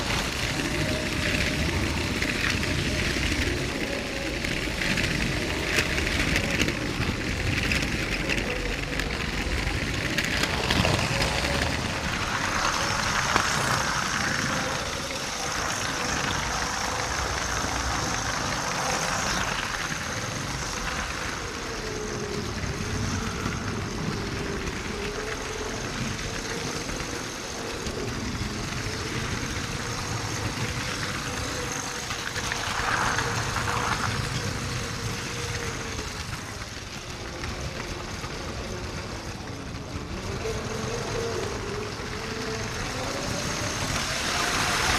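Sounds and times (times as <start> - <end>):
plastic wheels rattling on track: 0.0 - 44.9
toy train motor whine: 0.0 - 44.9.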